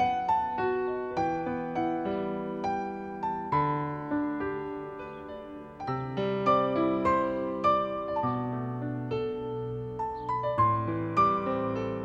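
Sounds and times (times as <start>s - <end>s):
soft piano music: 0.0s - 12.0s.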